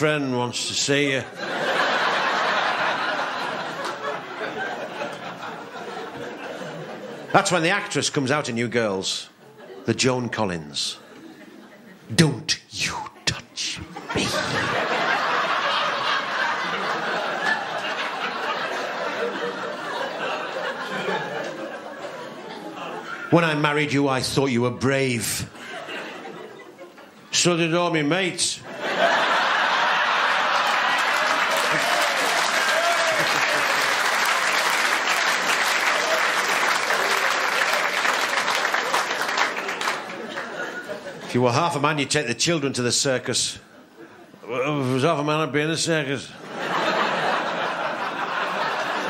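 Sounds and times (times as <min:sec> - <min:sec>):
audience laughing: 0:01.2 - 0:07.6, 0:11.0 - 0:12.2, 0:12.9 - 0:23.6, 0:25.5 - 0:27.3, 0:28.6 - 0:41.4, 0:46.4 - 0:49.0
audience clapping: 0:30.0 - 0:40.6.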